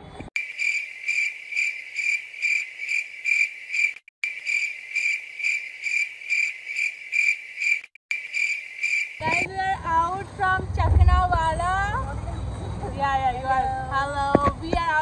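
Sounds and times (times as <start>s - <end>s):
cricket chirping: 0.4s - 9.5s.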